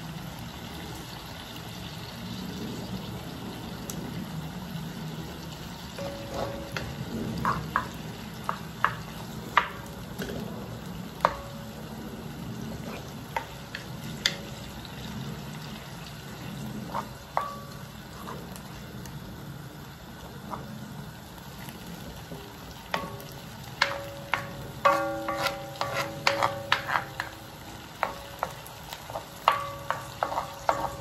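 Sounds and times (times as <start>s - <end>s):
vegetables sizzling in a wok: 0.0s - 31.0s
steady low hum: 3.4s - 31.0s
spoon knocking and scraping wok: 6.0s - 10.5s, 11.1s - 12.0s, 12.6s - 14.9s, 16.6s - 18.6s, 22.8s - 31.0s.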